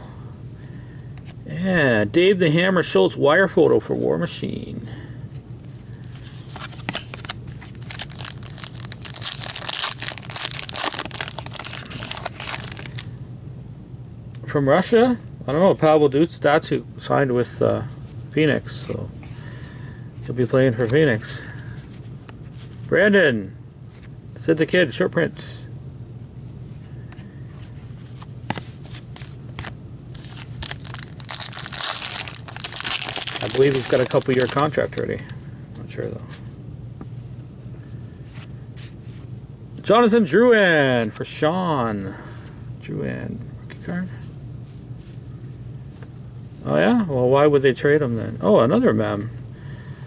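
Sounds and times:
steady low hum: 0.0s - 50.0s
cards clicking and rustling: 6.5s - 13.0s, 28.4s - 35.1s
foil wrapper crinkling and tearing: 6.6s - 13.0s, 29.0s - 35.0s.

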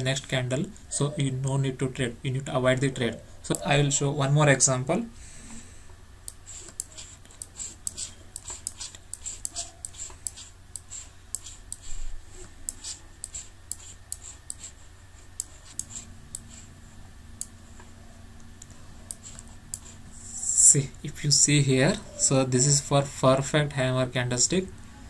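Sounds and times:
steady low hum: 0.0s - 25.0s
computer mouse clicking: 6.2s - 14.8s, 15.4s - 16.7s, 17.4s - 20.0s.

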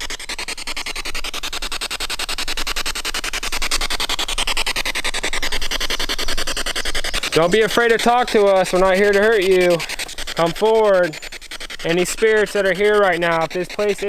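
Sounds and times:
chopped radio static: 7.0s - 11.2s, 11.8s - 14.0s.

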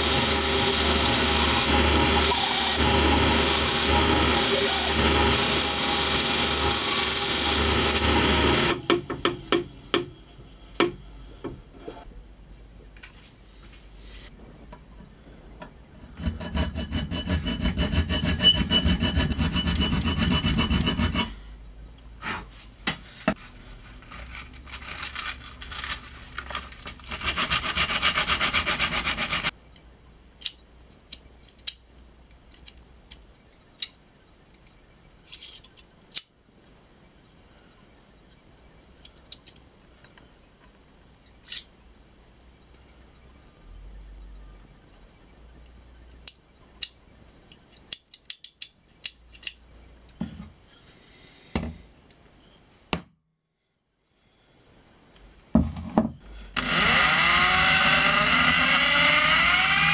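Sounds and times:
band saw cutting wood: 0.0s - 8.9s, 16.1s - 21.3s, 27.0s - 29.5s, 56.6s - 59.9s.

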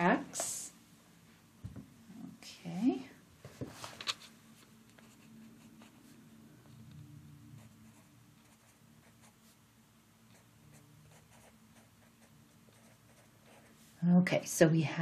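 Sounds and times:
faint low hum: 0.0s - 15.0s
pencil scratching on paper: 5.0s - 6.2s, 7.6s - 9.6s, 10.3s - 13.8s.

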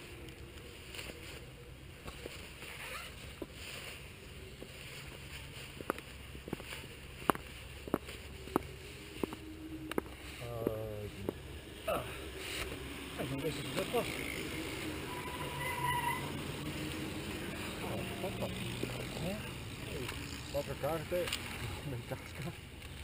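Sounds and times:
low steady rumble: 0.0s - 23.0s
person speaking: 8.0s - 15.6s, 16.2s - 22.7s.

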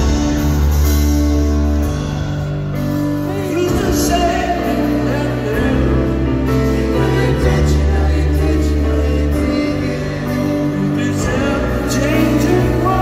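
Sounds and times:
live rock band: 0.0s - 13.0s
person singing: 2.8s - 13.0s.

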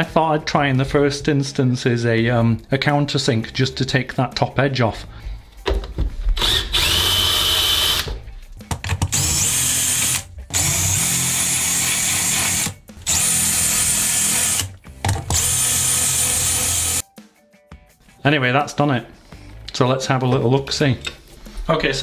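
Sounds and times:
cordless drill grinding metal: 6.4s - 8.1s, 9.1s - 17.0s.

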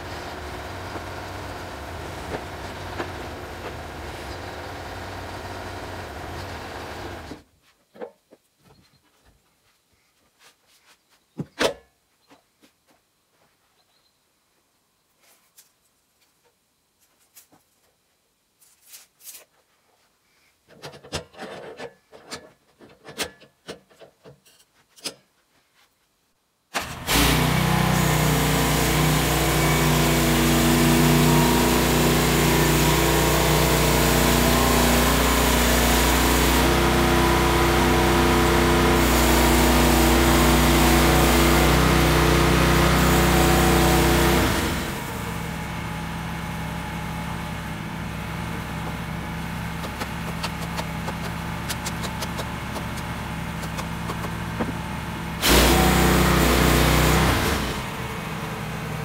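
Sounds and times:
sawmill petrol engine running: 0.0s - 7.4s, 26.8s - 59.0s.

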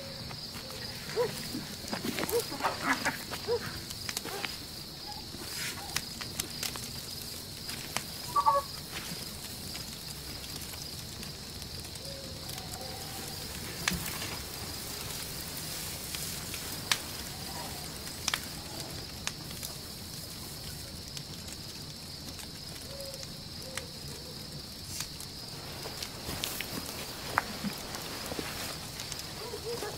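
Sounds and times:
small fire crackling and popping: 0.0s - 29.9s.

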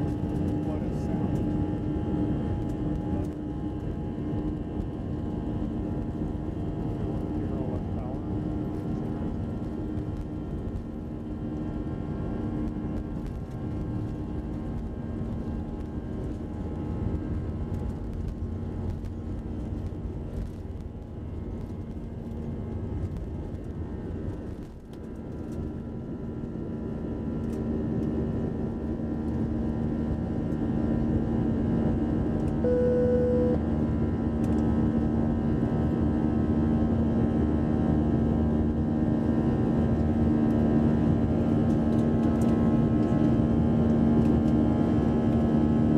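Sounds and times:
short single tone: 32.6s - 33.6s.

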